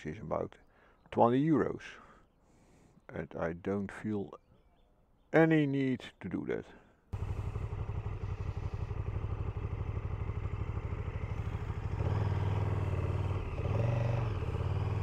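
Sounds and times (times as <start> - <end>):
motorcycle engine idling and revving: 7.2 - 15.0.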